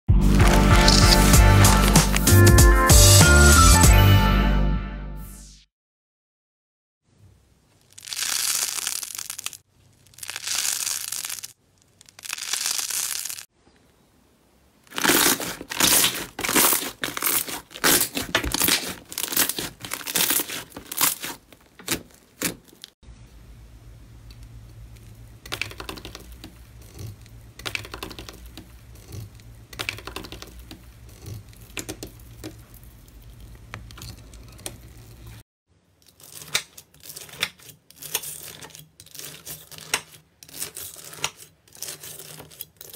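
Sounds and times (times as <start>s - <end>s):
slime squishing: 0.3s - 2.3s, 7.8s - 13.4s, 14.9s - 22.9s, 24.4s - 35.4s
slime crackling and popping: 0.4s - 2.3s, 7.8s - 13.5s, 14.9s - 23.0s
low steady hum: 23.0s - 36.0s.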